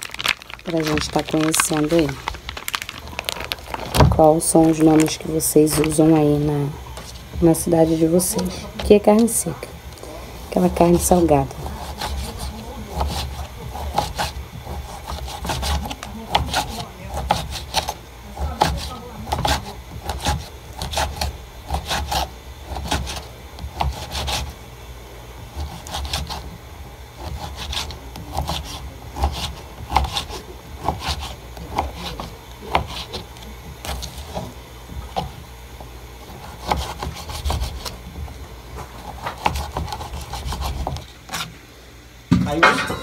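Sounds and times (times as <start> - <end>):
knife cutting dried meat: 10.6 - 24.6, 25.4 - 26.5, 27.2 - 35.5, 36.2 - 38.0, 38.8 - 41.5.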